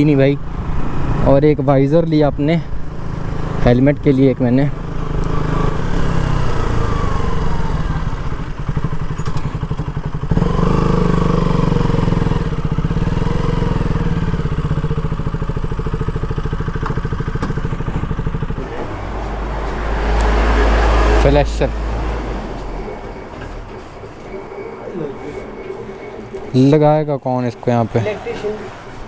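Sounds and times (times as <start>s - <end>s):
motorcycle engine running: 2.7s - 29.0s.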